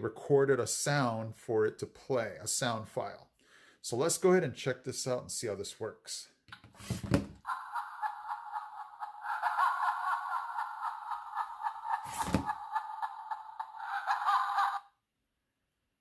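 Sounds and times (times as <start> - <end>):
tinny sinister laugh from speaker: 7.5 - 14.9.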